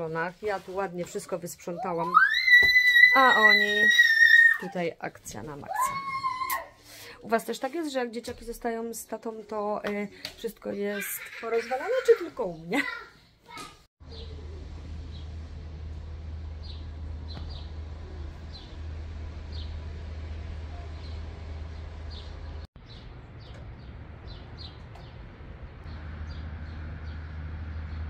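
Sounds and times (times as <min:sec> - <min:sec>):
small birds chirping: 0:14.0 - 0:15.3, 0:16.6 - 0:18.8, 0:21.8 - 0:28.0
steady low rumble: 0:14.0 - 0:28.0.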